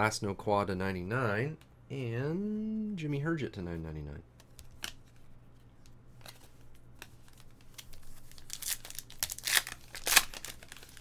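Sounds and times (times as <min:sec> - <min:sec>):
foil wrapper crinkling and tearing: 0:07.3 - 0:11.0.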